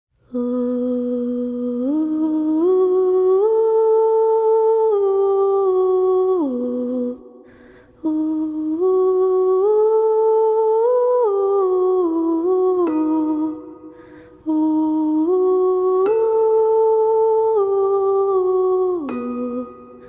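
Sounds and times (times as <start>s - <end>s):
woman humming melody: 8.0s - 20.0s.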